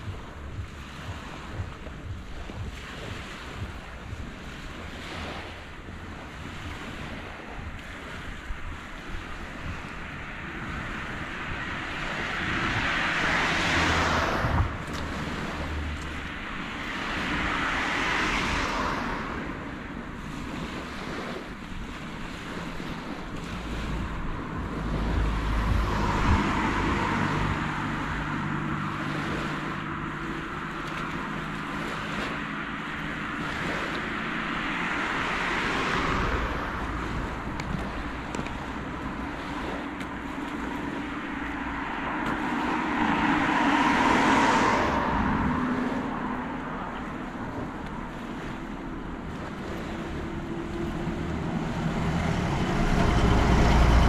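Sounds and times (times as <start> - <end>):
small waves washing onto sand: 0.0 - 54.0
vehicles passing: 0.0 - 54.0.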